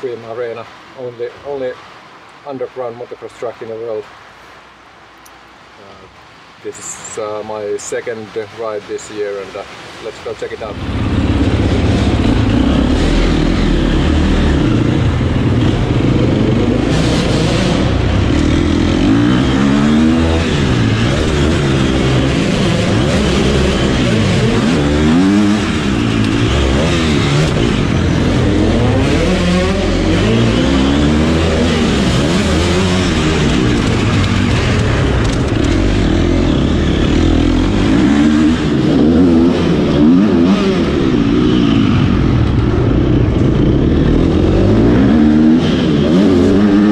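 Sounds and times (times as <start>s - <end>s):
motocross bike engine revving: 10.8s - 46.9s.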